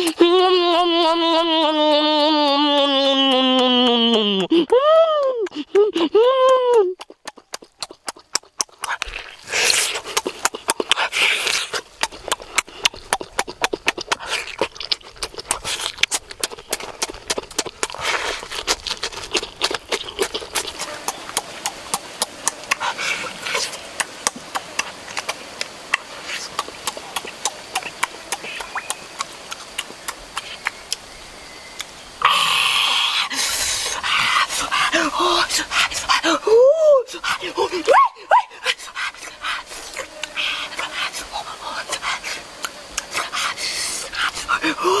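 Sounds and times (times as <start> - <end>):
chewing and lip-smacking: 1.3 - 31.0, 38.7 - 45.0
breathy slurps and sucks: 7.0 - 30.8, 32.2 - 36.5.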